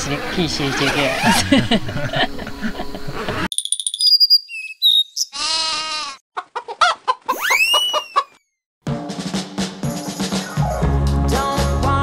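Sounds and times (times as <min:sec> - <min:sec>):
high whistle tones and chirps: 0:03.5 - 0:05.4, 0:07.3 - 0:08.5
wavering bleat-like call: 0:05.3 - 0:06.2.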